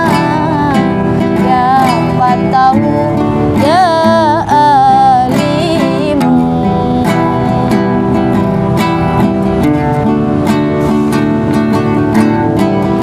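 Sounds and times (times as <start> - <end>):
woman singing devotional song: 0.0 - 8.6
strummed acoustic guitar: 0.0 - 13.0.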